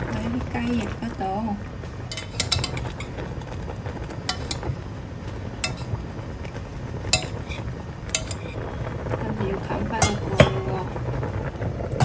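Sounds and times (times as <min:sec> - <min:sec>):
sauce bubbling: 0:00.0 - 0:12.0
utensil clinking against pot: 0:02.1 - 0:03.2, 0:04.2 - 0:04.7, 0:05.6 - 0:06.0, 0:07.1 - 0:08.7, 0:10.0 - 0:10.7.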